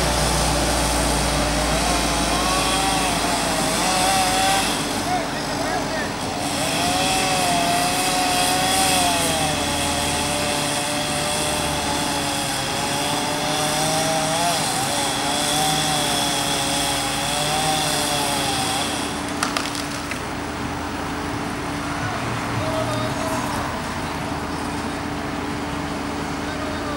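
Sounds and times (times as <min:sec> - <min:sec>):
chainsaw cutting branch: 0:00.0 - 0:20.6
sharp cracks: 0:18.8 - 0:20.5.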